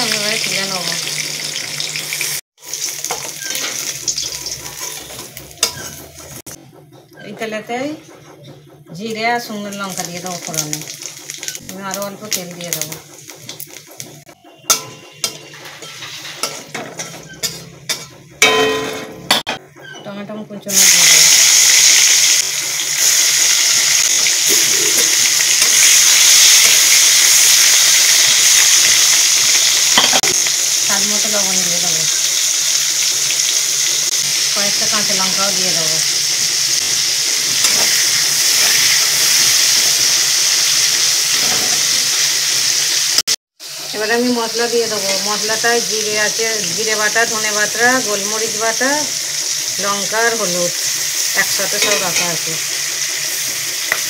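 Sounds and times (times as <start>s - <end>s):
spices sizzling in hot oil: 0.0s - 6.5s, 9.7s - 18.1s, 20.7s - 54.0s
metal spatula scraping a pan: 2.8s - 6.4s, 14.4s - 20.1s, 51.4s - 52.5s.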